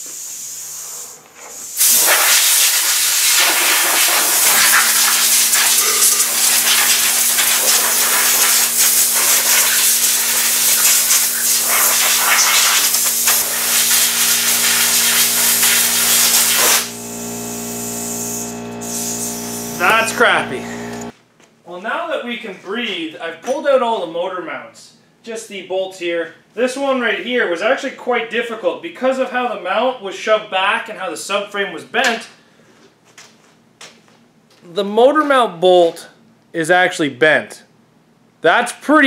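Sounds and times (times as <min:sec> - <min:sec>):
compressed air blow gun hissing: 0:00.0 - 0:20.0
steady low hum: 0:13.3 - 0:21.1.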